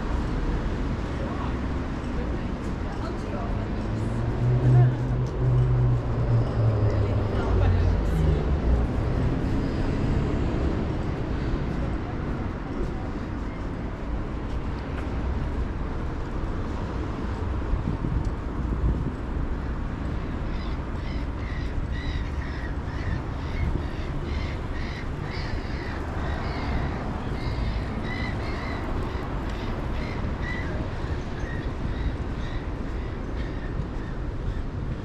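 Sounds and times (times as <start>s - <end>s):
birds calling: 20.5s - 34.7s.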